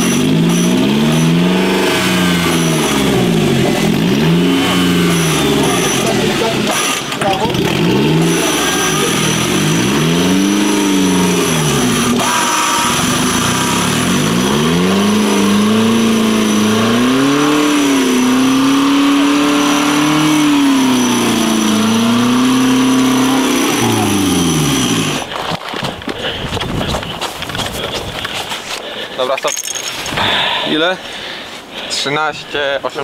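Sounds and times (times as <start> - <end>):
off-road vehicle engine revving: 0.0 - 25.4.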